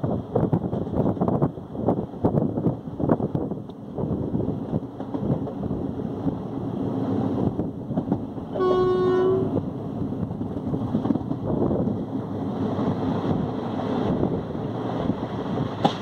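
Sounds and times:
train rumbling and clattering: 0:00.0 - 0:16.0
train horn blast: 0:08.5 - 0:09.6.

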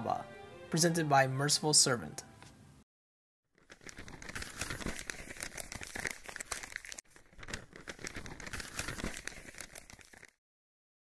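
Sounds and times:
paper crinkling and rustling: 0:03.5 - 0:10.4.

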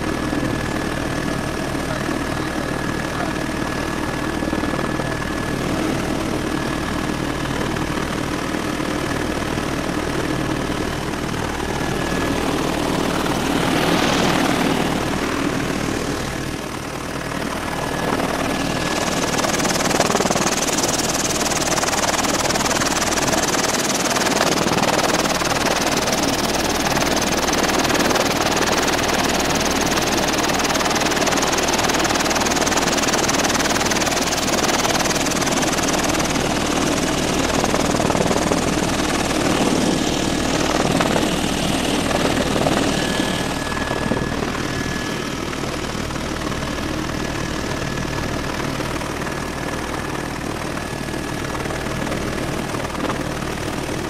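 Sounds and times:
helicopter rotor and engine noise: 0:00.0 - 0:54.0.

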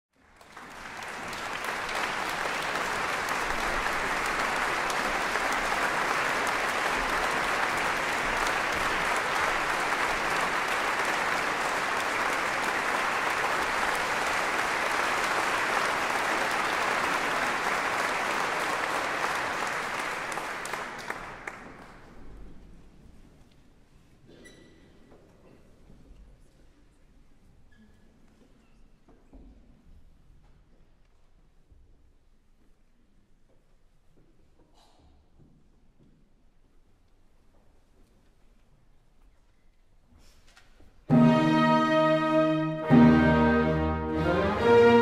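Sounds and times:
audience applauding: 0:00.2 - 0:22.2.

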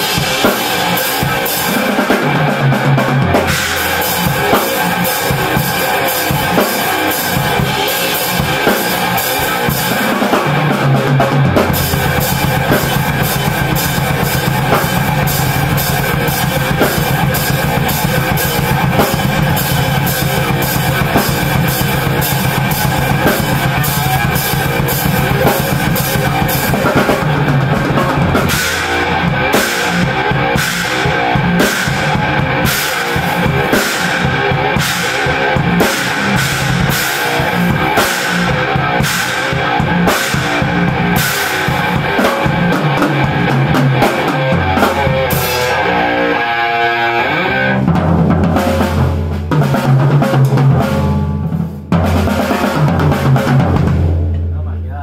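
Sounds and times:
fast double-bass drumming: 0:00.0 - 0:46.2, 0:47.8 - 0:55.0
heavy metal band playing: 0:00.0 - 0:55.0.

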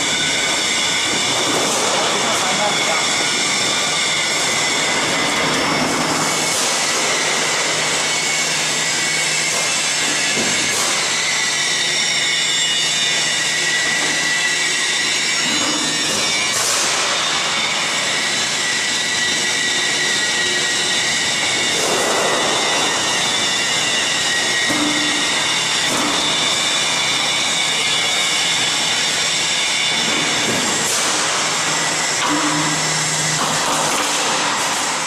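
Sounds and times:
machine whine: 0:00.0 - 0:35.0.

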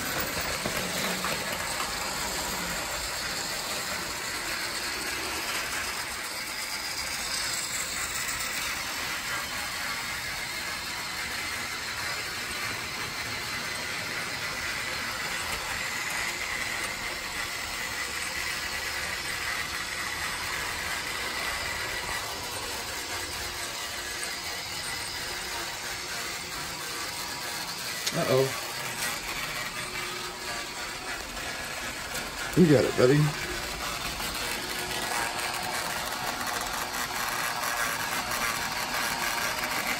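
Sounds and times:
toy train motor whirring: 0:00.0 - 0:39.9.

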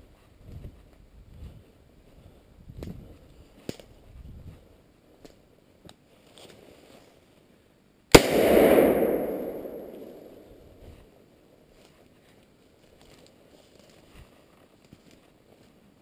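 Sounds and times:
gunshot with echo: 0:08.2 - 0:10.6.

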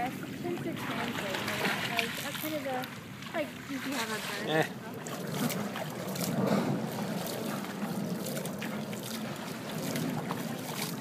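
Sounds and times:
pool water sloshing and splashing: 0:00.0 - 0:11.0
wind on microphone: 0:03.9 - 0:11.0.

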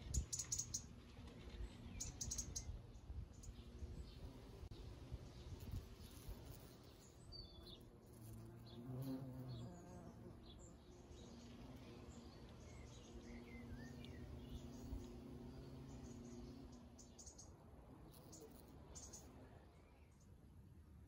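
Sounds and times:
bumblebee buzzing: 0:05.4 - 0:10.8, 0:11.4 - 0:17.2, 0:17.9 - 0:19.3.

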